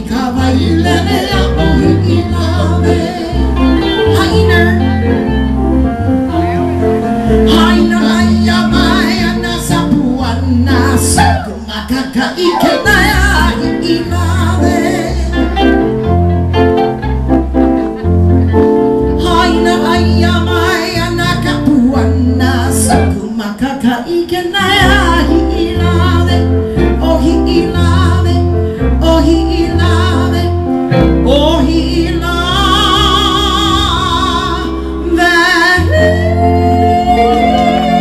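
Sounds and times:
bass line: 0:00.0 - 0:23.4, 0:24.6 - 0:38.0
band accompaniment: 0:12.5 - 0:23.4, 0:30.7 - 0:38.0
person singing wavering notes: 0:19.1 - 0:23.5, 0:34.4 - 0:38.0.

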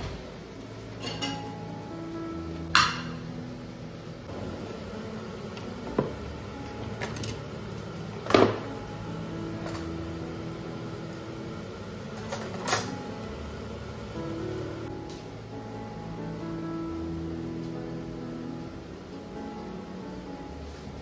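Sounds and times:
cutlery clinking in drawer: 0:01.0 - 0:01.5, 0:12.2 - 0:13.0.

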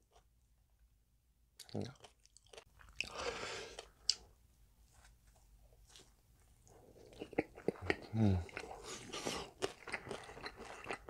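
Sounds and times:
crunchy chewing: 0:05.8 - 0:11.0.

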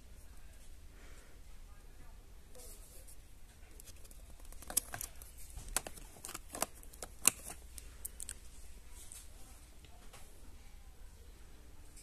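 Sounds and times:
plastic candles clicking and tapping: 0:03.8 - 0:08.4.

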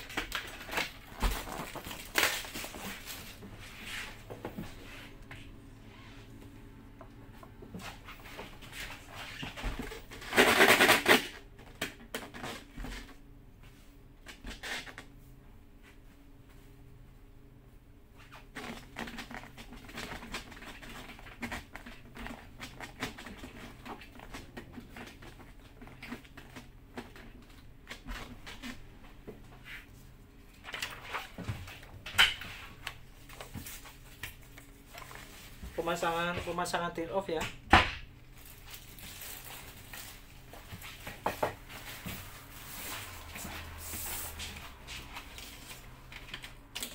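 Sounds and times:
cloth rubbing inside helmet: 0:41.6 - 0:46.0.

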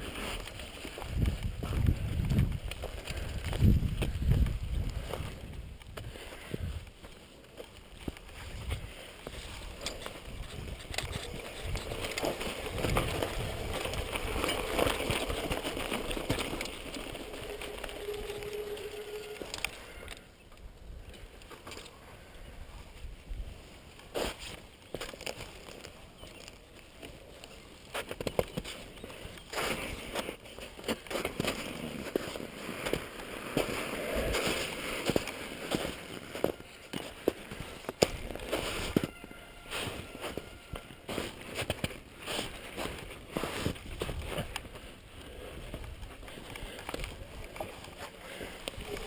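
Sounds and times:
bike tyre rumble on dirt: 0:00.0 - 0:20.1, 0:23.2 - 0:49.0
bike rattling over bumps: 0:09.7 - 0:19.7.

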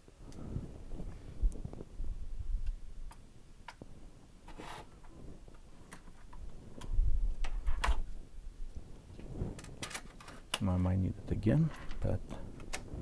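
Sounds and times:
small plastic parts clicking: 0:09.6 - 0:10.7.

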